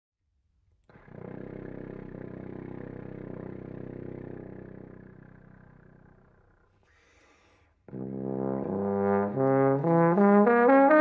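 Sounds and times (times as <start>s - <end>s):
trombone fluttering low note: 7.9s - 11.0s.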